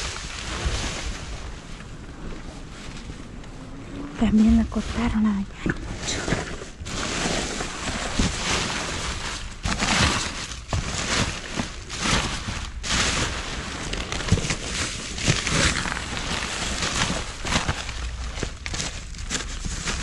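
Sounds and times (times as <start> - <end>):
plastic bags rustling: 0.0 - 20.0
items knocking and clattering: 6.1 - 20.0.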